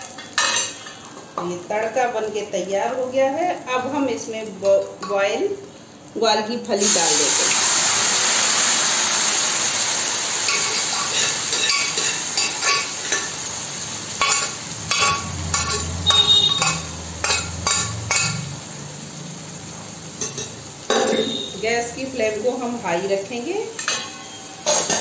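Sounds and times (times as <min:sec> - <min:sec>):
metal clinks and scrapes on pan: 0:00.0 - 0:01.1, 0:10.5 - 0:13.3, 0:14.2 - 0:18.4, 0:20.2 - 0:21.5, 0:23.8 - 0:25.0
beans sizzling in hot oil: 0:00.0 - 0:25.0.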